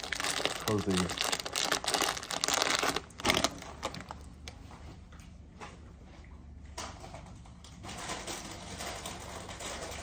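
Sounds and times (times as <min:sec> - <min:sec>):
plastic snack bag crinkling: 0:00.0 - 0:04.6
low room hum: 0:00.0 - 0:10.0.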